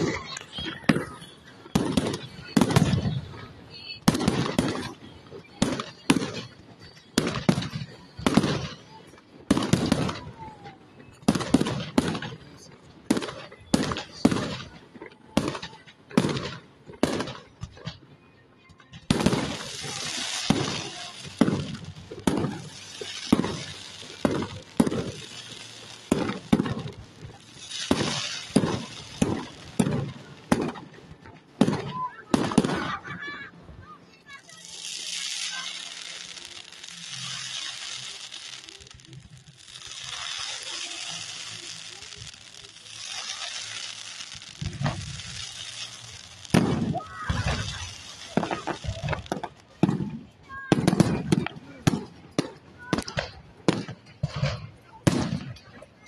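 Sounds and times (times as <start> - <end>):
fireworks bursting with bangs: 0.0 - 56.0
steady fireworks hissing: 0.0 - 56.0.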